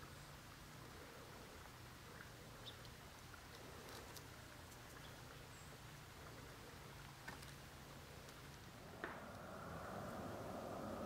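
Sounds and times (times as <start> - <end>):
faint steady hiss: 0.0 - 11.0
low hum: 7.8 - 11.0.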